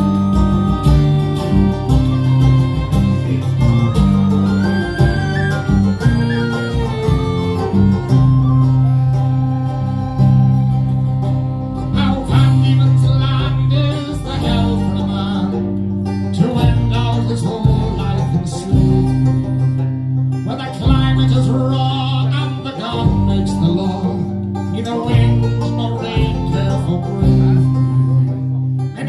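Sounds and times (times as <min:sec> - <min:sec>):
whistle melody: 0:00.0 - 0:11.3, 0:22.9 - 0:24.4, 0:26.4 - 0:28.5
bass guitar: 0:00.0 - 0:29.0
fiddle melody: 0:00.0 - 0:29.0
strummed acoustic guitar: 0:00.0 - 0:29.0.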